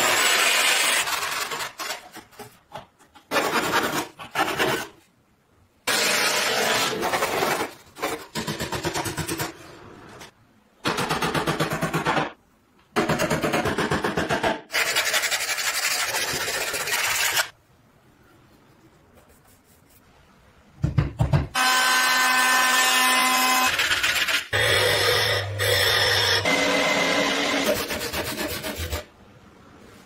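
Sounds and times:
sandpaper rubbing: 0:14.8 - 0:17.5.

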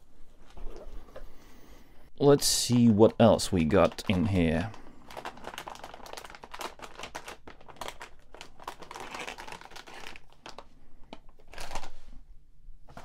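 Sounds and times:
plastic bag crinkling: 0:02.8 - 0:12.1.

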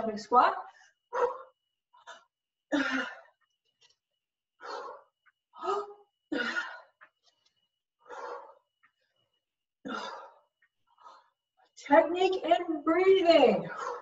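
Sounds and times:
woman breathing hard: 0:04.6 - 0:11.4, 0:13.7 - 0:14.0.

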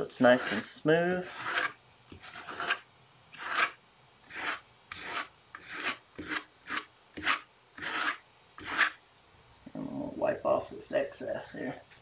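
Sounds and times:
spatula scraping wet paper: 0:00.1 - 0:02.8, 0:03.4 - 0:09.0.

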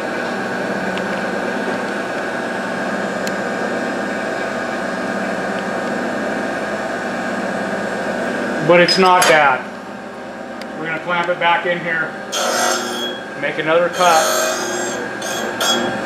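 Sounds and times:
grinder running: 0:12.1 - 0:16.0.

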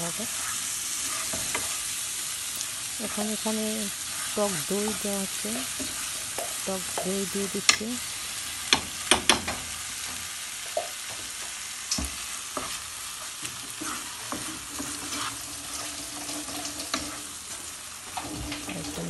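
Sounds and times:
masala sizzling in a pan: 0:00.0 - 0:19.0
spatula scraping a pan: 0:00.3 - 0:02.3, 0:03.1 - 0:07.1, 0:12.2 - 0:19.0
spatula knocking on a pan: 0:05.8 - 0:07.2, 0:08.7 - 0:09.7.

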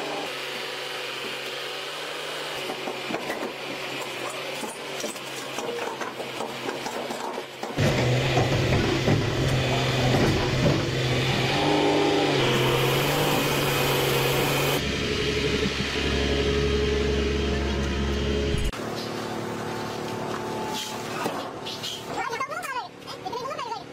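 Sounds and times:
heavy diesel engines humming: 0:07.8 - 0:21.8.

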